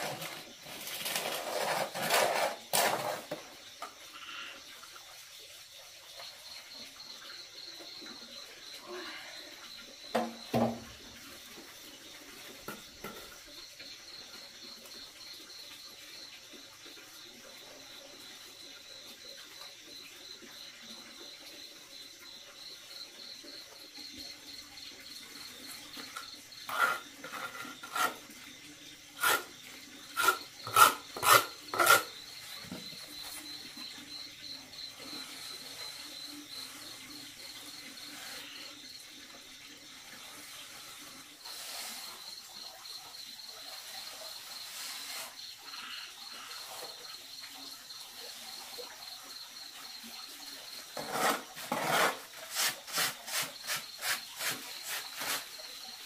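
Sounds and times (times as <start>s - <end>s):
sharp trowel strokes: 0.0s - 3.4s, 26.0s - 28.2s, 29.2s - 32.2s, 51.0s - 55.6s
trowel scraping cement: 0.0s - 3.5s, 25.6s - 28.4s, 29.2s - 33.5s, 43.8s - 45.4s, 50.9s - 55.7s
crickets chirping: 0.0s - 56.0s.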